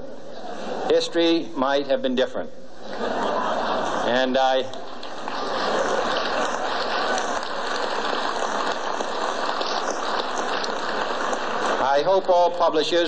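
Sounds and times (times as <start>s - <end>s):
audience laughing: 2.8s - 4.4s, 5.1s - 11.4s
audience clapping: 2.9s - 12.4s.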